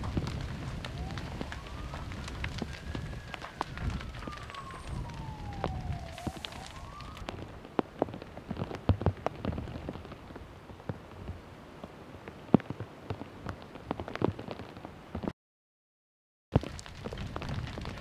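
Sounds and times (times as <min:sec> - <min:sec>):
fire hissing: 0:00.0 - 0:07.2
sharp pops of burning wood: 0:00.0 - 0:10.2, 0:16.6 - 0:18.0
fire crackling: 0:00.0 - 0:15.2, 0:16.6 - 0:18.0.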